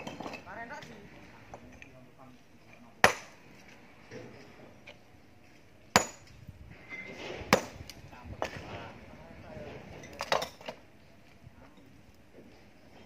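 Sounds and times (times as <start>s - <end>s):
sledgehammer striking rock: 3.0s - 3.4s, 5.9s - 6.3s, 7.5s - 7.8s.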